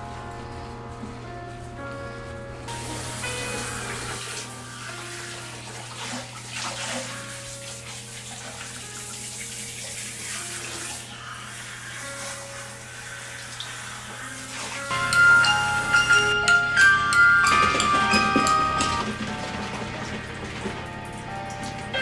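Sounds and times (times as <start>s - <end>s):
faint background music: 0.0s - 22.0s
water spraying: 2.7s - 16.4s.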